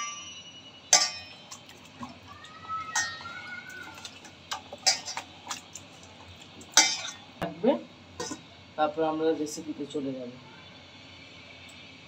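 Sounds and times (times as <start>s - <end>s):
clinks against metal bowl: 0.0s - 1.7s, 3.0s - 3.3s, 4.1s - 5.6s, 6.7s - 7.3s, 8.2s - 8.4s
wet handling of meat: 1.4s - 7.3s.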